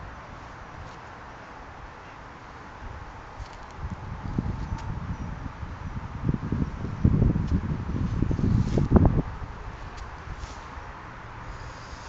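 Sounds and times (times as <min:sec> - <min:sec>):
wind buffeting microphone: 0:02.7 - 0:12.0.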